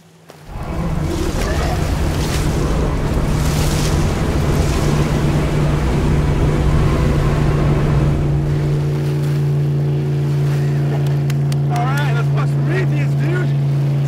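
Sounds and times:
motorboat engine droning: 0:00.4 - 0:14.0
waves splashing: 0:00.4 - 0:14.0
wind rumbling on microphone: 0:00.5 - 0:11.1
man thrashing in water: 0:00.5 - 0:11.7.

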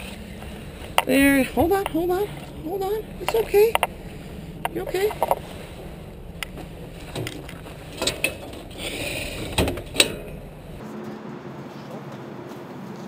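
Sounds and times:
scraping rustle: 0:00.0 - 0:10.8
clicks and knocks on metal: 0:06.4 - 0:10.6.

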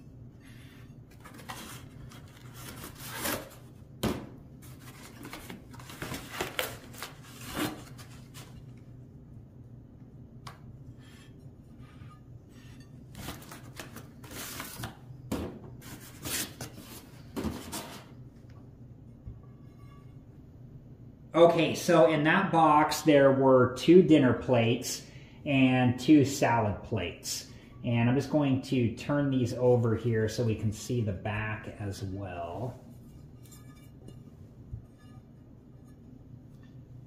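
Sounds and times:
plates rubbing and scraping: 0:10.9 - 0:14.8, 0:32.8 - 0:37.0.

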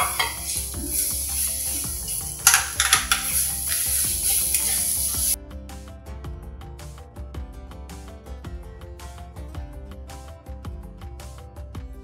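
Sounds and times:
spatula scraping metal pan: 0:00.0 - 0:04.9
paste sizzling in hot oil: 0:00.0 - 0:05.4.

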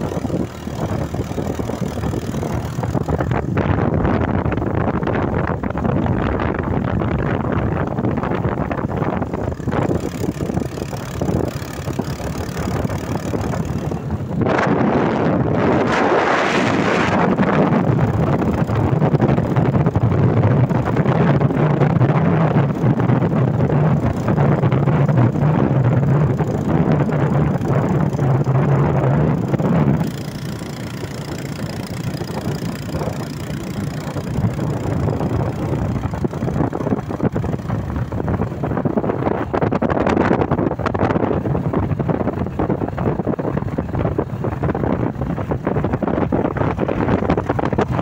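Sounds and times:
motorcycle engine hum: 0:00.0 - 0:48.0
wind rushing on microphone: 0:00.0 - 0:48.0.

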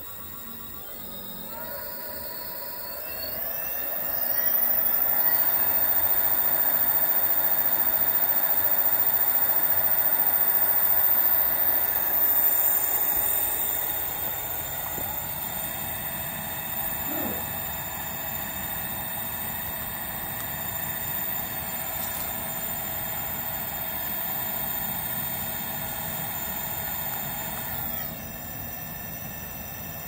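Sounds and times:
hub motor whirring hum: 0:00.0 - 0:30.0.

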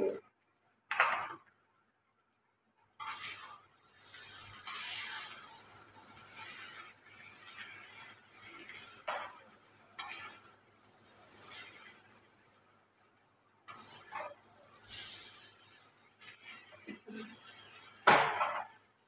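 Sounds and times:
noodles sizzling: 0:00.0 - 0:19.0
spatula scraping a wok: 0:03.0 - 0:12.5, 0:13.7 - 0:18.9.

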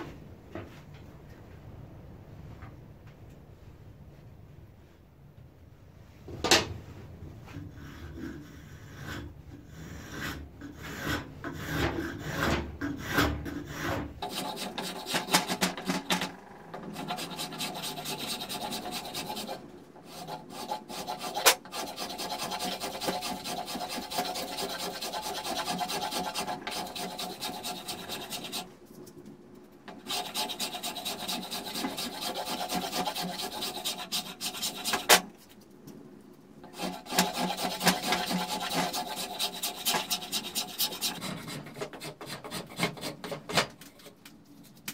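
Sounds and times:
blade scraping wood: 0:07.7 - 0:29.0, 0:29.9 - 0:35.6, 0:36.6 - 0:44.2.

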